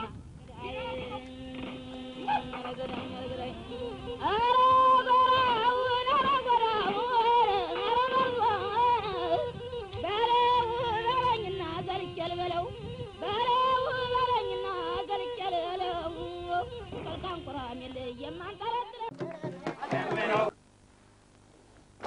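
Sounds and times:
woman singing ornamented melody: 0.6 - 19.6.

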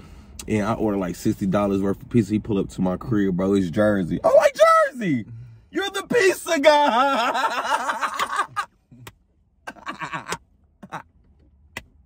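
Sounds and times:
man talking: 0.4 - 7.6
men laughing: 6.6 - 8.8, 9.7 - 11.0.

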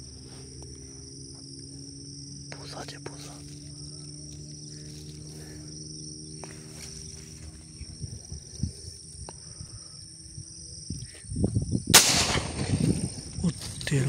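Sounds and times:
high-pitched insect drone: 0.0 - 14.0
shotgun shot: 11.9 - 13.4.

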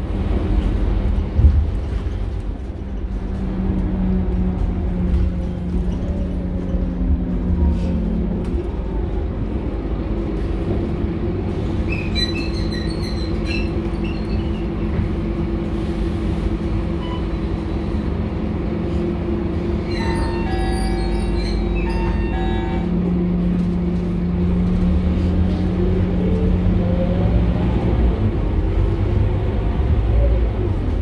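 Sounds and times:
bus diesel engine drone: 0.0 - 31.0
road rumble: 0.0 - 31.0
high-pitched squeals: 19.8 - 22.9.

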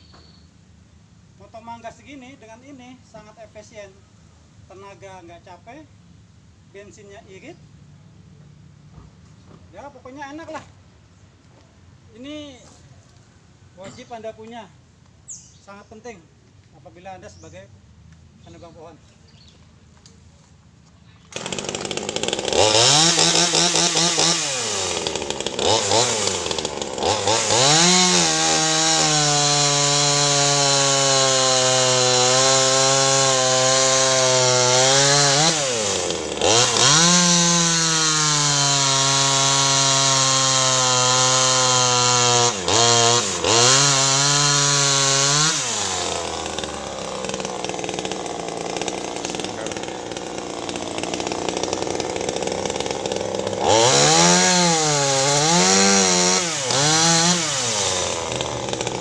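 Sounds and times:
chainsaw sawing wood: 21.3 - 59.0.

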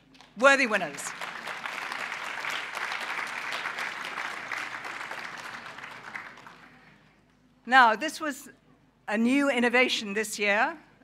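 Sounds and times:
audience applauding: 0.9 - 6.9.

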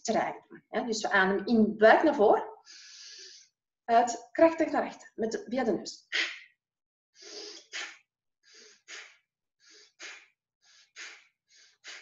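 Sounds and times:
forceful nasal breathing: 2.6 - 3.5, 7.2 - 12.0.

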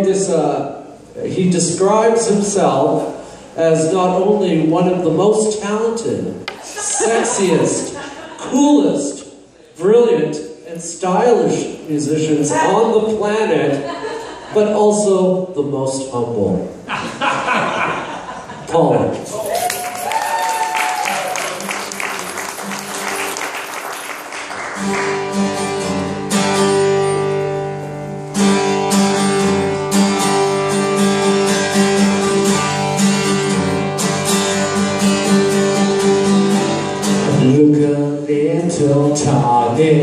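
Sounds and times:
applause: 19.5 - 25.4
acoustic guitar strumming: 21.3 - 40.0
man singing: 37.2 - 40.0.

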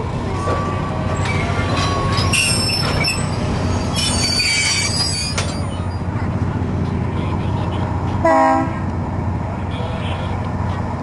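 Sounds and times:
train coaches rumbling on rails: 0.0 - 11.0
metallic wheel squeal: 0.4 - 6.1.

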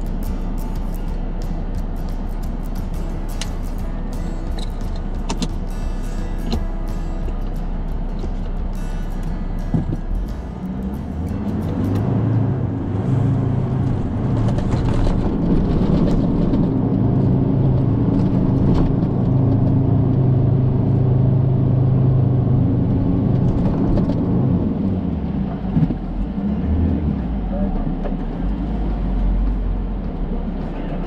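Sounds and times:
off-road vehicle engine running: 0.0 - 31.0.

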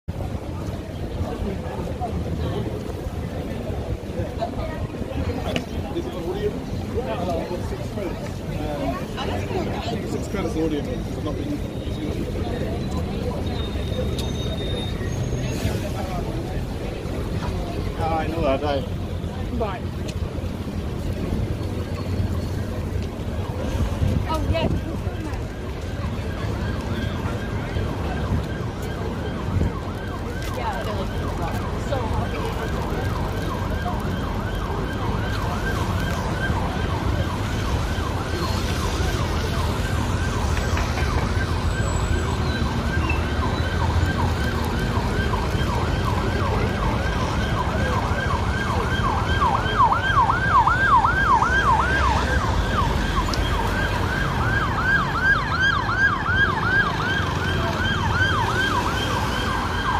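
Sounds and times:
low rumble of street traffic: 0.1 - 59.9
emergency siren yelping: 22.4 - 59.9.

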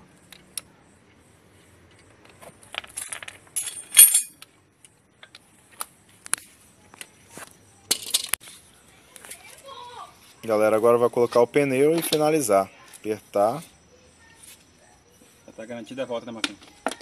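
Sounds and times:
metal tools clinking: 2.7 - 4.5, 7.9 - 8.4.

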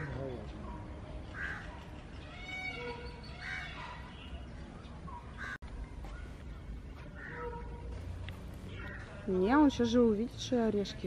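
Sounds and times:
bird calling: 0.0 - 8.0.

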